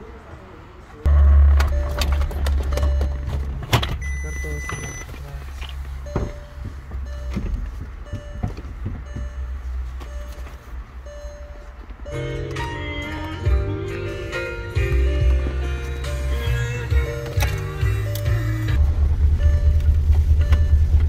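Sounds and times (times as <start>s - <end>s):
short electronic beeps: 1.1s - 3.3s, 4.0s - 5.1s, 6.0s - 7.4s, 8.0s - 12.4s, 19.4s - 21.0s.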